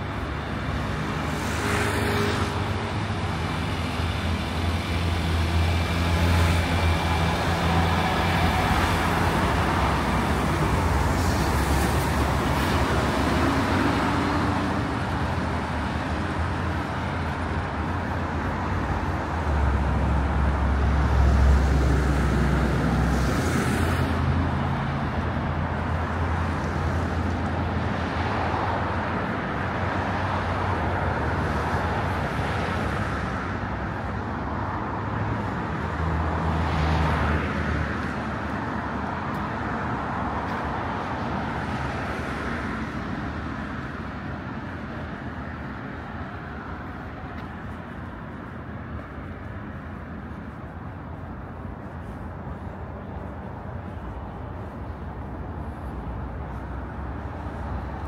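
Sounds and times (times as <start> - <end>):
heavy vehicle passing: 0.0 - 34.1
passing cars rumbling: 0.0 - 58.0.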